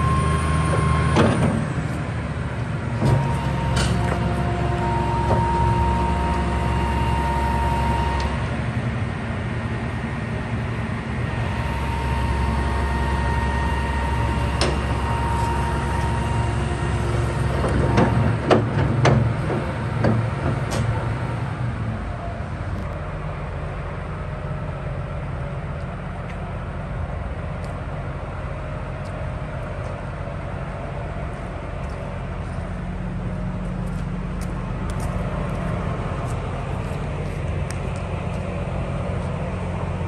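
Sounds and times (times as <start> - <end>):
hydraulic whine: 0.0 - 25.5
excavator diesel engine running: 0.0 - 40.0.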